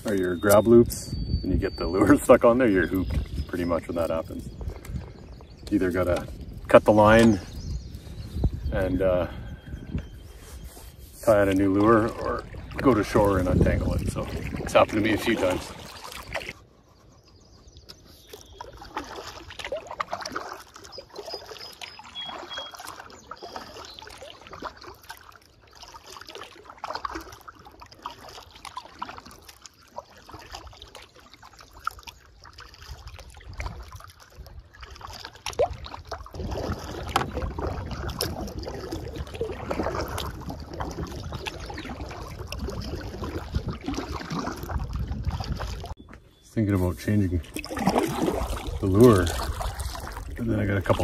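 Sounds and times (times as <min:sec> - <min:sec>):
water lapping against canoe hull: 0:00.0 - 0:51.0
small water splashes: 0:02.0 - 0:16.7, 0:17.3 - 0:46.0, 0:46.6 - 0:51.0.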